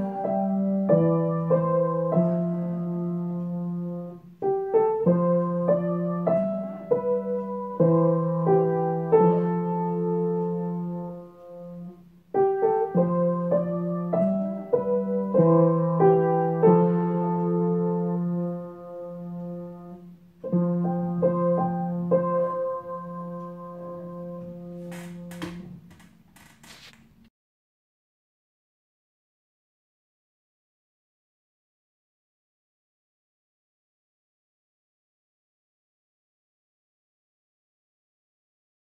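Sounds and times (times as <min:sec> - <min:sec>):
gentle piano music: 0:00.0 - 0:25.9.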